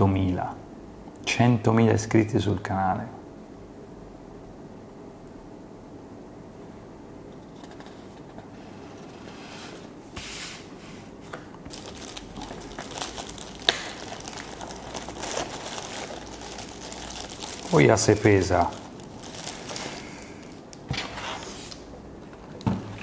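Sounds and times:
plastic film crinkling: 11.7 - 21.8.

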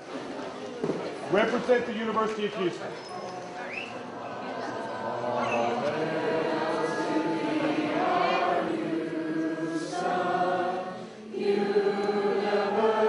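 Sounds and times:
group singing in unison: 4.0 - 13.0.

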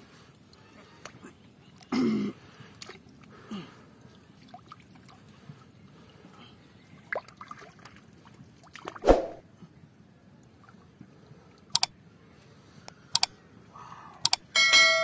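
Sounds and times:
small water splashes: 0.5 - 6.0, 6.8 - 9.1.

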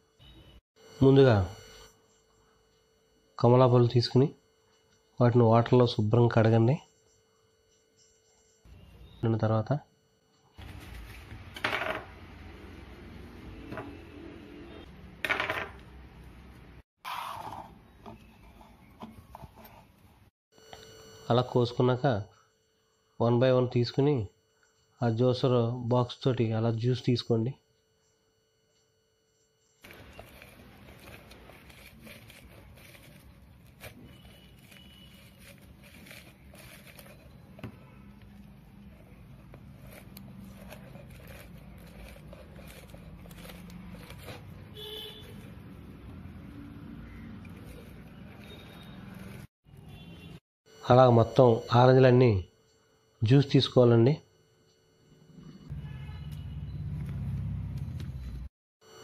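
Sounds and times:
orange pulp squishing: 29.8 - 49.5.

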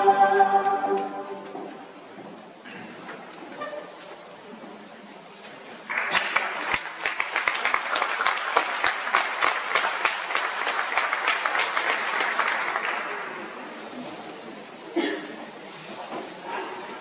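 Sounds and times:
audience applauding: 5.9 - 13.5.

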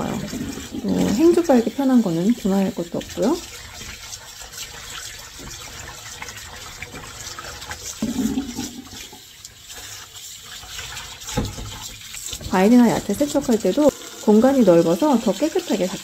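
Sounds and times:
dishcloth rubbed and squeezed: 0.0 - 16.0
tap water splashing into basin: 0.0 - 16.0.

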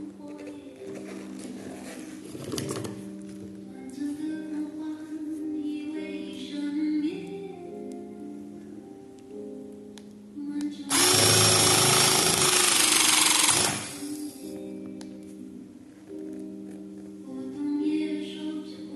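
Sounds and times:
background music: 0.0 - 18.9
cable cutter motor whirring: 10.9 - 14.1.

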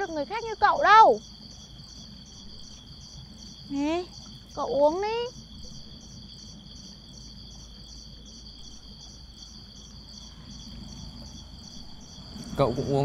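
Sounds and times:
crickets chirping: 0.0 - 13.0
low background hum: 0.0 - 13.0.

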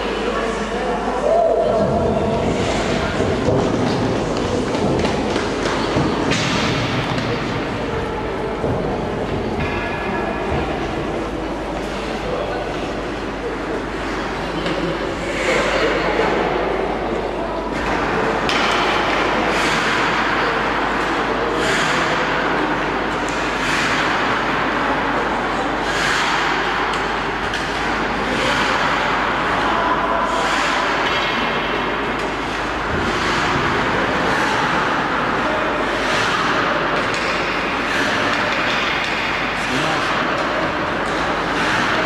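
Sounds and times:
skate blades scraping ice: 23.3 - 24.5, 25.8 - 26.8.

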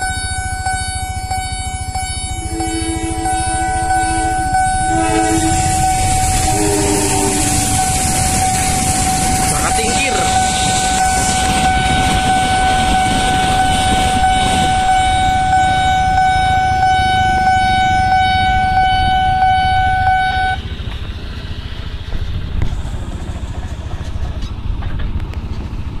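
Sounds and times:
level crossing warning tone: 0.0 - 20.7
motorcycle and traffic engines: 0.0 - 26.0.

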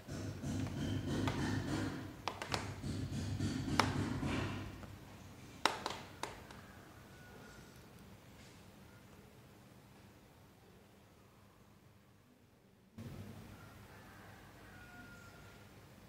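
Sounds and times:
sharp taps: 0.1 - 4.6.

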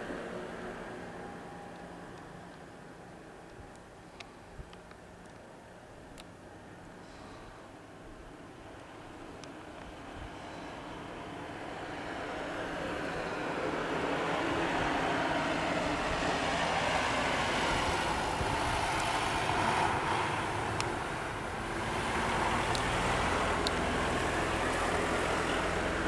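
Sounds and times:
cars passing: 0.0 - 3.4, 8.5 - 26.0.

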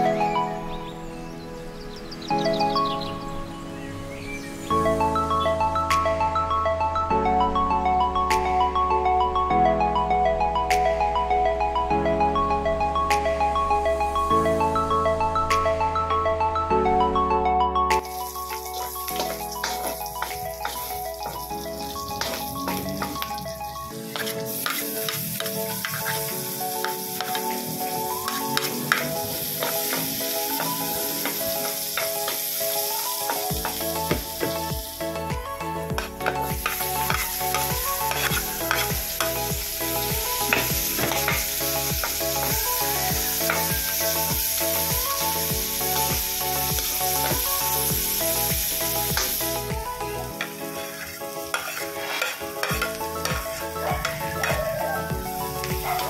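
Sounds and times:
background music with beat: 4.5 - 56.0
meat sizzling in hot oil: 18.0 - 35.0, 36.0 - 56.0
plastic spatula scraping wok: 24.1 - 26.4, 50.7 - 53.4.

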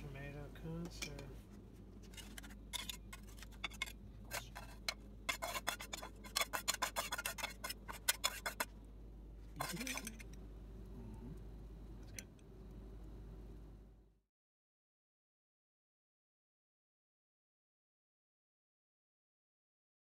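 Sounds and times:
steady low hum: 0.0 - 14.2
metal spatula scraping a pan: 2.0 - 8.7, 9.6 - 10.3.

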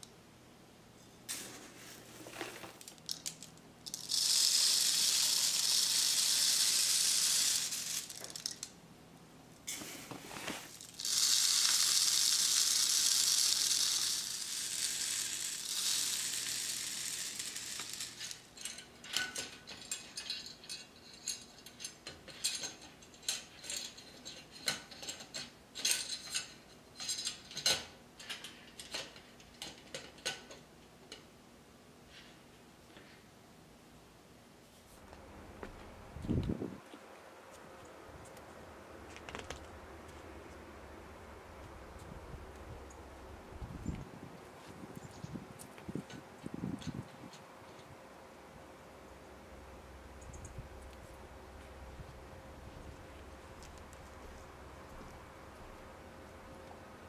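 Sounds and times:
birdseed pouring through funnel: 1.3 - 8.7, 10.3 - 18.6
seed trickle: 2.4 - 8.7, 10.6 - 18.6.

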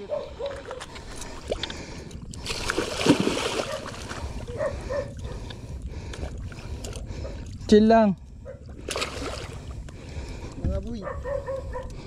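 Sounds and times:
fish thrashing and splashing: 0.4 - 4.5, 8.7 - 9.7.

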